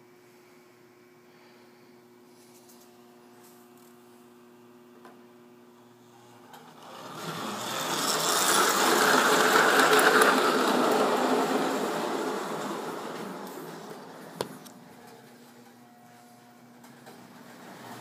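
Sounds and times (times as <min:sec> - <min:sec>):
electric motor hum: 0:06.0 - 0:18.0
toy train rattling along track: 0:06.6 - 0:14.0.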